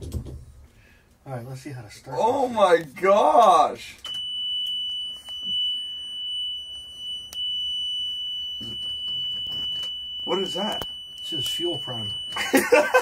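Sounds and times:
high-pitched warning alarm tone: 4.0 - 13.0.

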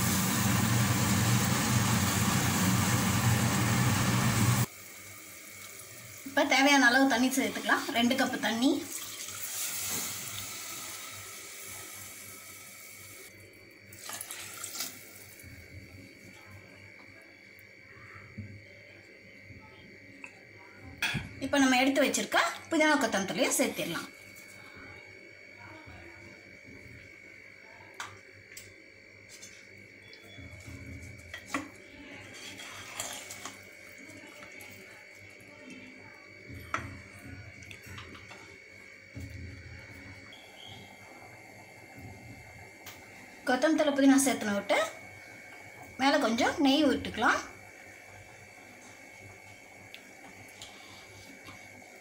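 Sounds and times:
high background whine: 0.0 - 5.3
water pouring from a jug: 13.9 - 15.0
ladle scraping pot: 32.3 - 33.6.

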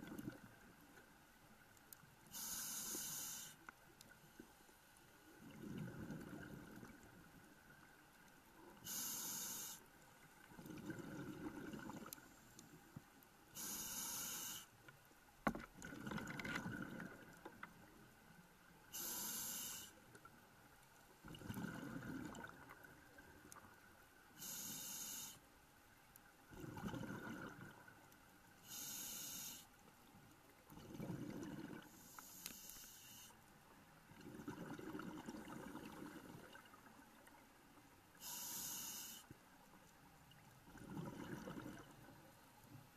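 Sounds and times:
regulator inhale hiss: 2.3 - 3.6, 8.8 - 9.9, 13.5 - 14.8, 18.9 - 20.0, 24.4 - 25.5, 28.6 - 29.7, 31.9 - 33.4, 38.2 - 39.3
rumble of exhaled bubbles: 5.4 - 7.2, 10.5 - 12.2, 15.8 - 17.5, 21.2 - 23.2, 26.5 - 27.9, 30.7 - 31.9, 34.1 - 36.7, 40.7 - 42.1.

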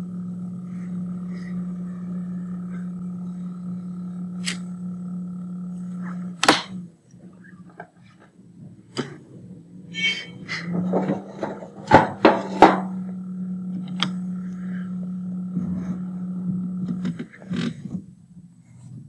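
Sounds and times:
higher steady tone: 0.0 - 7.7, 8.5 - 17.2
steady low hum: 0.0 - 19.0
sharp knocks: 10.7 - 12.9.

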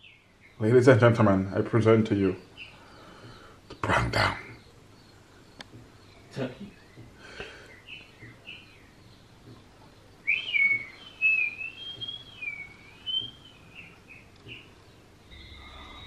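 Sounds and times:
short chirp-like notes: 15.2 - 16.0.

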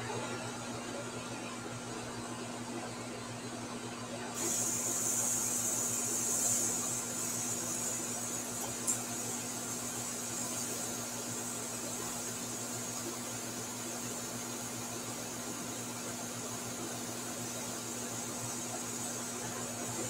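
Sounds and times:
airbrush hissing: 4.4 - 20.0.

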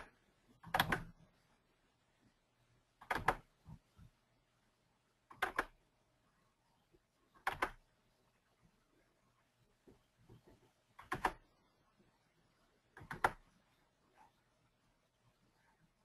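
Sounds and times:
computer mouse double-clicking: 0.0 - 1.1, 3.0 - 3.5, 5.3 - 5.8, 7.4 - 7.8, 11.0 - 11.4, 13.0 - 13.4.

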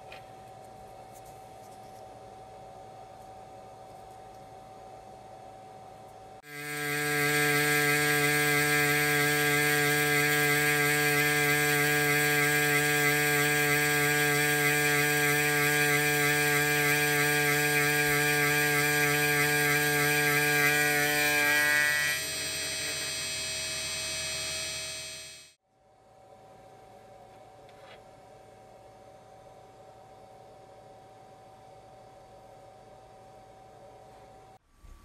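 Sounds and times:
milling machine cutting metal: 6.5 - 25.5.

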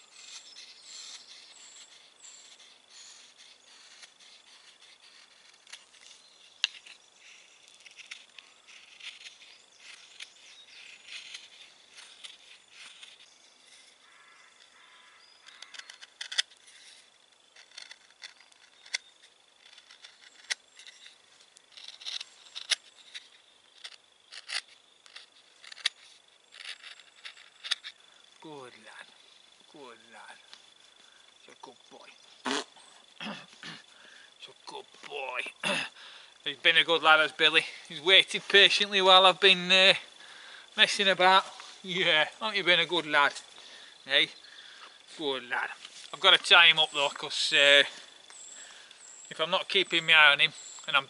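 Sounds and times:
knife scraping wood: 0.0 - 28.0.

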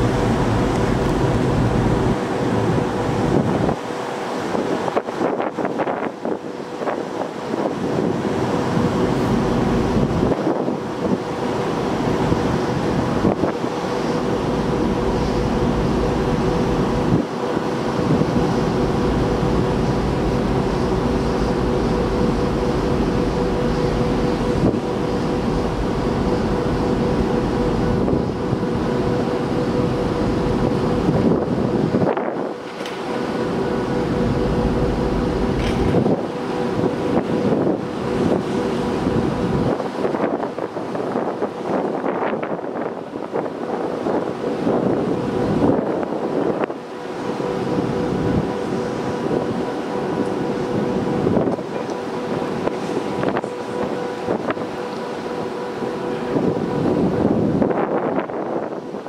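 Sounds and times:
ship machinery hum: 0.0 - 59.0
wind buffeting microphone: 0.0 - 59.0.

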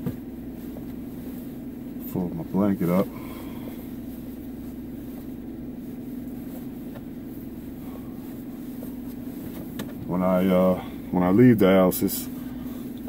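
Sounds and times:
car hum inside cabin: 0.0 - 13.0
blanket rustling: 0.3 - 2.1, 2.7 - 10.0.

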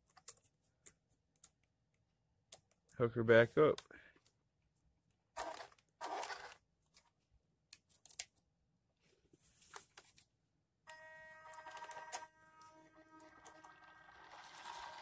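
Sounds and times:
rustling and scraping handling: 9.0 - 10.3
electric winch motor whine: 10.9 - 15.0.

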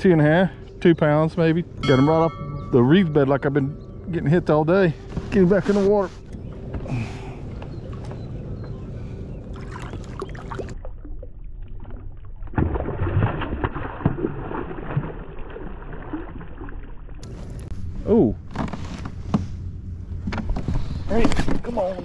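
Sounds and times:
water sloshing: 1.9 - 17.7
fish splashing and thrashing: 9.5 - 17.2.

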